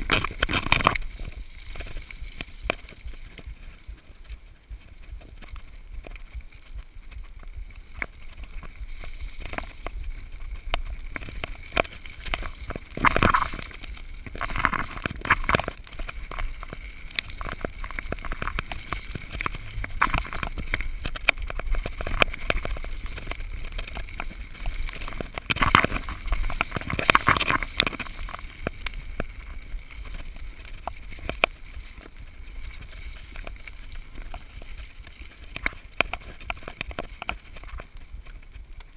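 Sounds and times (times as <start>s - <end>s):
bike clattering and rattling: 0.0s - 38.9s
tyres rumbling over stones: 0.0s - 38.9s
wind noise on microphone: 0.0s - 38.9s.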